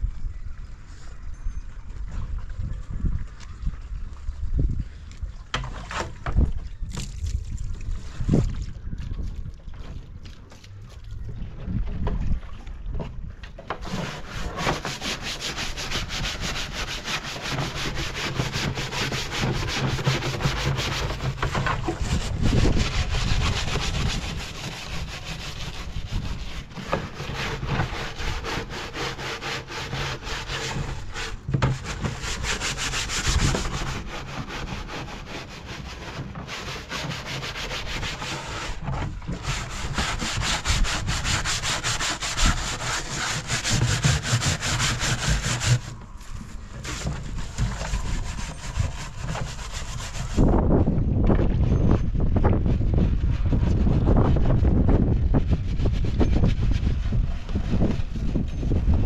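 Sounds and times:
hand tool scraping wood: 13.7 - 50.6.

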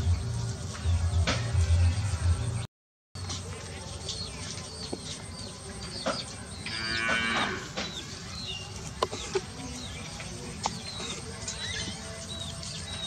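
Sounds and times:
drawn-out animal call: 6.6 - 13.0.

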